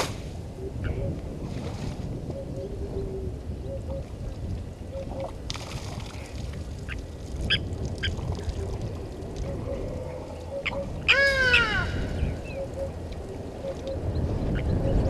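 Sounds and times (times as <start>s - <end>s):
bird call falling in pitch: 11.1s - 12.4s.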